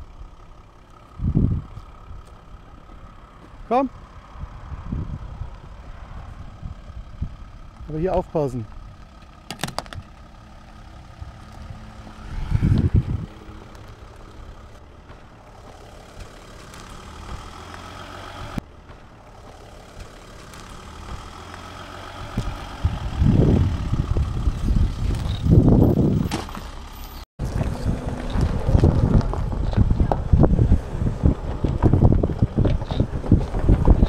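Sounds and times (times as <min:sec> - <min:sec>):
van engine running at low revs: 0:00.0 - 0:34.0
wind rumbling on microphone: 0:01.1 - 0:08.0, 0:10.9 - 0:14.8, 0:22.2 - 0:26.3, 0:27.4 - 0:34.0
tyres crawling over stony ground: 0:07.7 - 0:12.0, 0:13.4 - 0:22.9, 0:26.2 - 0:34.0.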